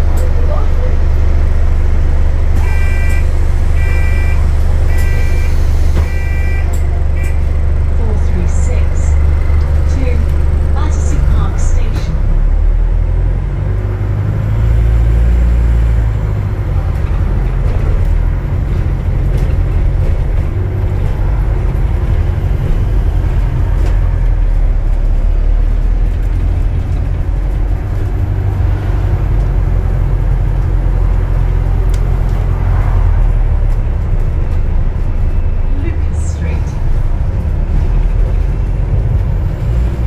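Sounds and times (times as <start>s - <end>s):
bus drivetrain drone: 0.0s - 40.0s
road noise: 0.0s - 40.0s.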